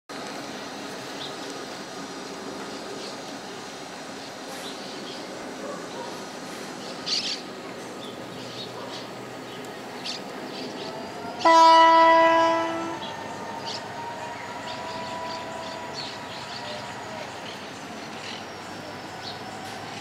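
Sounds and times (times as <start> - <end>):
locomotive running slowly: 0.1 - 20.0
multi-tone train horn blast: 11.3 - 17.4.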